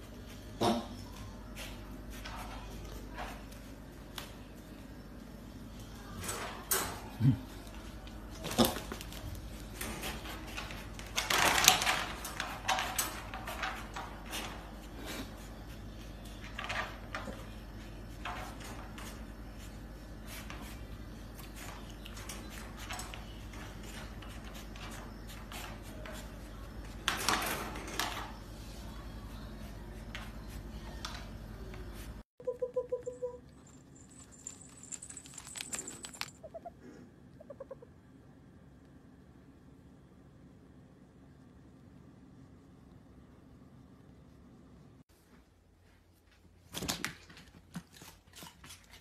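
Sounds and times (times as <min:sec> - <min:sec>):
piglets scrambling in wire crate: 0:06.2 - 0:14.7.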